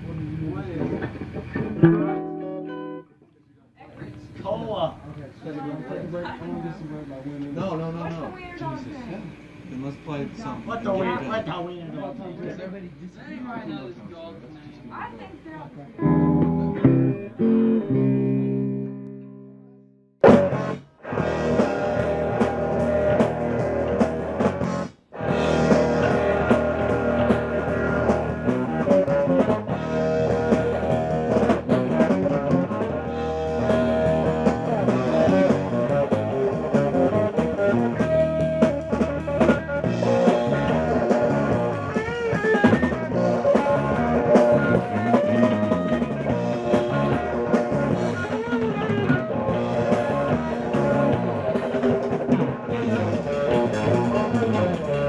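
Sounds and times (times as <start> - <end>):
rock band playing instrumental: 0.9 - 3.0, 16.0 - 19.5, 20.2 - 55.0
strummed guitar chord: 1.6 - 3.2, 16.0 - 20.5.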